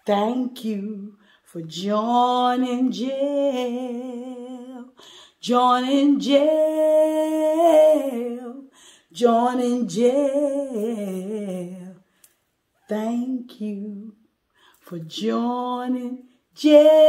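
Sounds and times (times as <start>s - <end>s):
woman singing a cappella: 0.0s - 12.1s, 12.9s - 17.0s.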